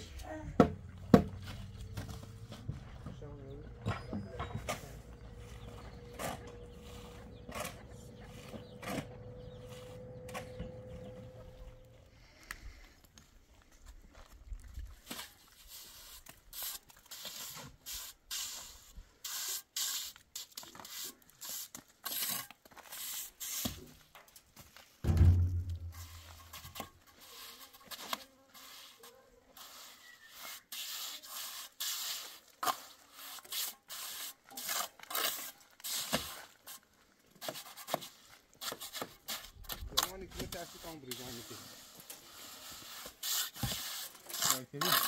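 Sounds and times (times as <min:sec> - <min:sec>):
scraping and rubbing strokes: 0:15.0 - 0:23.8, 0:25.1 - 0:45.0
heavy low thump: 0:25.1 - 0:26.4.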